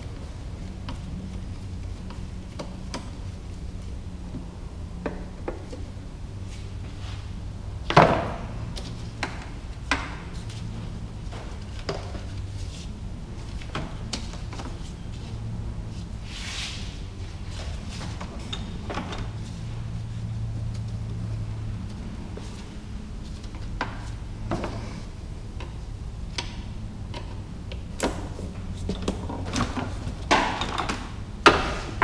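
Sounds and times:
steady low hum: 0.0 - 32.0
hand tools knocking and clicking: 30.2 - 32.0.

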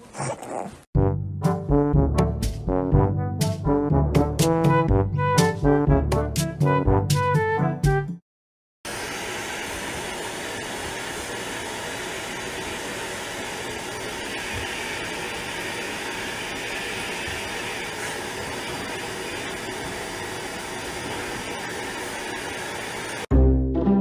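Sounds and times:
vacuum cleaner running: 8.9 - 23.3.

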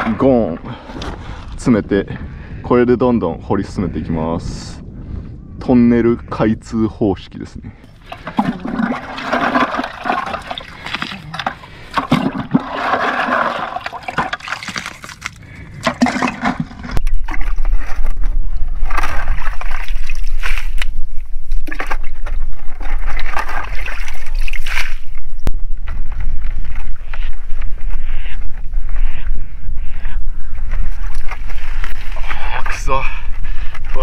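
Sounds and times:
wind rumble on microphone: 0.0 - 8.9, 15.4 - 34.0
water sloshing and splashing: 7.8 - 25.3.

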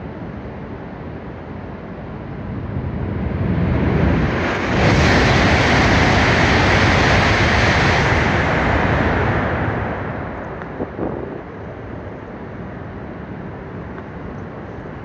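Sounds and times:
high-speed train rushing past: 2.1 - 12.8.

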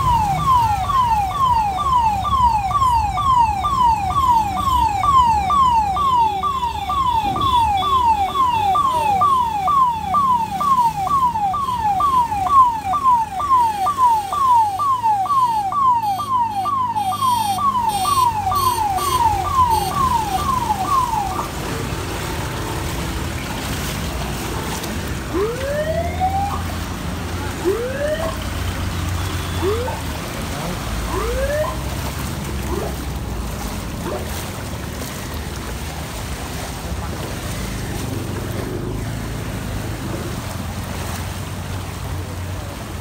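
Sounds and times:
electronic alarm falling sweeps: 3.3 - 21.4.

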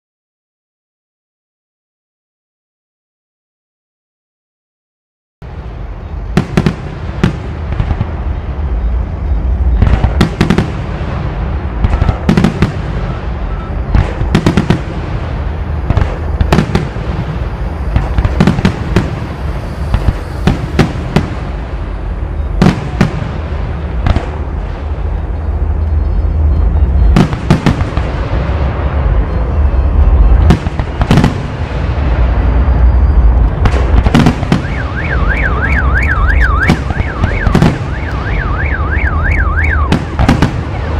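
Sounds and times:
fireworks bangs and crackles: 5.4 - 40.9
low rumble: 12.9 - 34.4.

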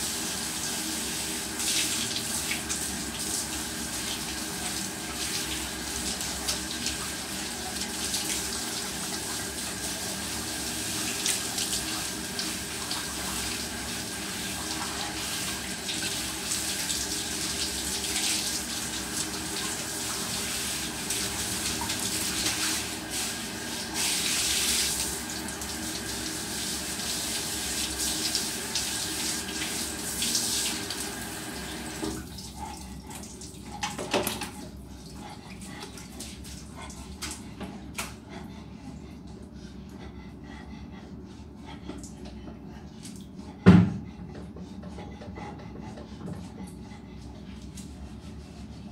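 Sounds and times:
shower head spraying water: 14.8 - 32.0.

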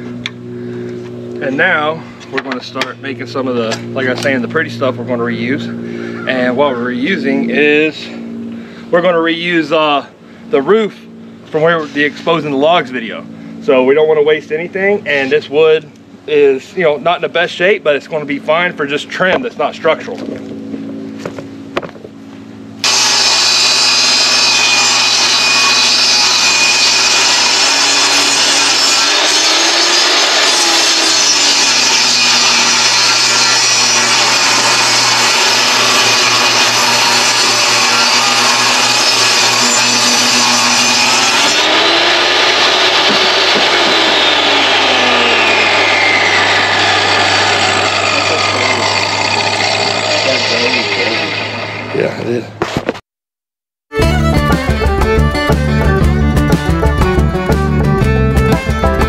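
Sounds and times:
saw whine winding down: 0.0 - 21.5, 22.6 - 52.4
table saw cutting wood: 22.8 - 52.9, 53.9 - 59.0.

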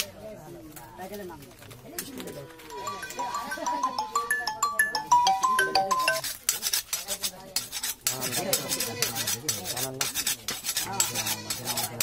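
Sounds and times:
knife blade scraping metal: 6.2 - 12.0.

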